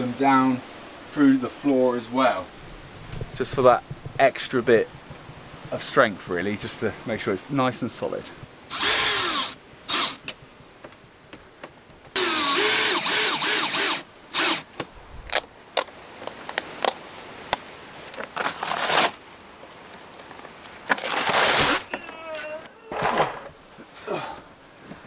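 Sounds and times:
cordless drill driving screws: 8.7 - 10.2, 12.1 - 14.7
cardboard packaging ripping: 18.3 - 19.2, 20.9 - 21.9.

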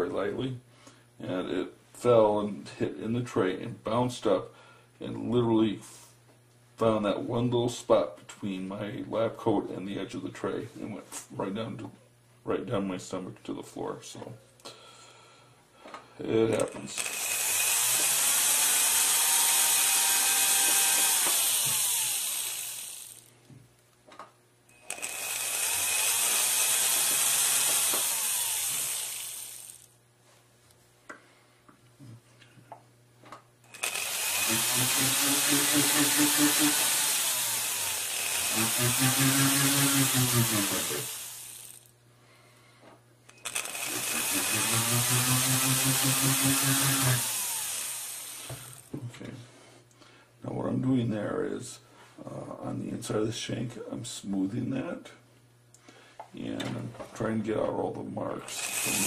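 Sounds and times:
rotary tool grinding metal: 16.9 - 23.3, 24.8 - 29.9, 33.7 - 41.9, 43.3 - 48.9, 58.4 - 59.0.

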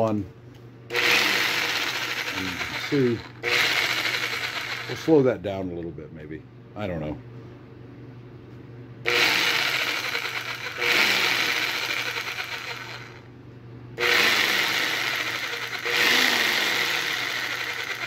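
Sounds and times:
jigsaw running with no load: 0.9 - 5.2, 9.1 - 13.3, 14.0 - 18.0.

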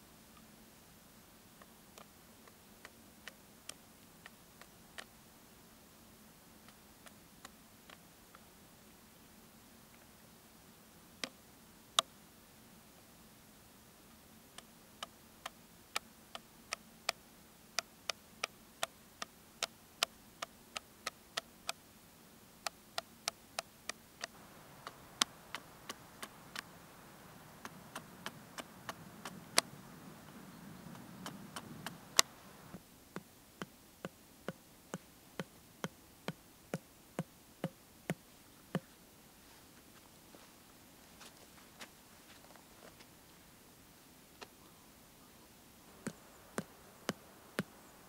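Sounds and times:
faint rustle and scraping: 38.8 - 48.0.

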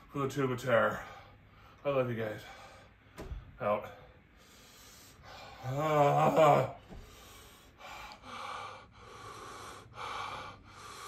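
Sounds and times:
man groaning: 5.6 - 6.9.

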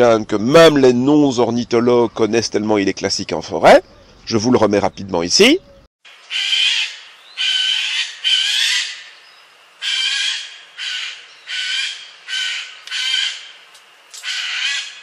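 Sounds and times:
jay screeching alarm call: 5.6 - 15.0.

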